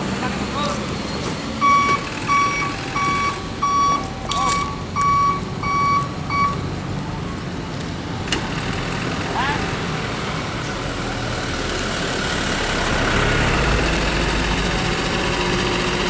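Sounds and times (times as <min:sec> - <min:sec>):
truck engine running: 0:00.0 - 0:16.0
reversing alarm beeping: 0:01.6 - 0:06.7.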